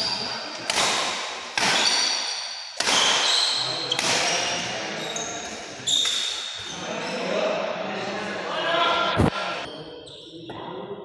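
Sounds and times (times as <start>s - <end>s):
racket striking shuttlecock: 0.6s - 4.4s
sneakers squeaking on court floor: 1.7s - 7.3s.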